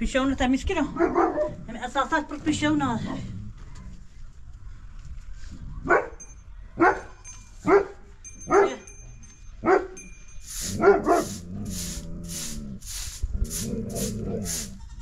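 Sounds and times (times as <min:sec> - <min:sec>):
dog barking: 0:01.0 - 0:01.5, 0:05.8 - 0:06.2, 0:06.8 - 0:08.8, 0:09.6 - 0:10.0, 0:10.7 - 0:11.4
rhythmic rasping noise: 0:10.4 - 0:15.0.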